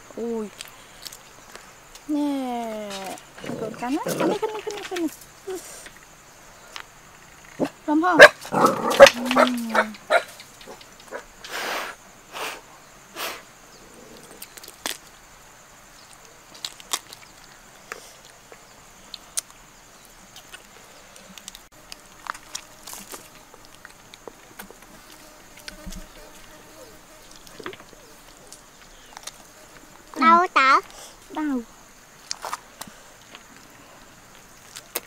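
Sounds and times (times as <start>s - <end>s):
child chewing: 34.3s - 35.0s.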